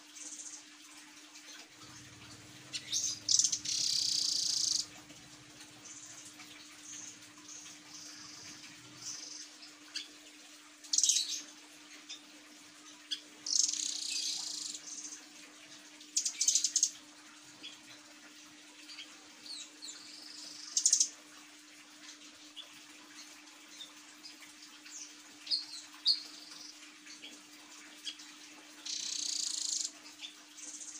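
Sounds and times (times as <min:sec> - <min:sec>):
faint steady hum: 0:00.0 - 0:30.9
bird rapid high chirping: 0:02.7 - 0:04.9.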